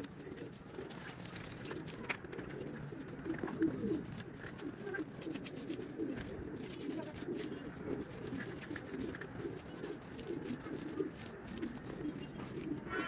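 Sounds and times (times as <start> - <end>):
doves cooing: 0.0 - 13.0
hand smoothing wet mud floor: 4.1 - 12.8.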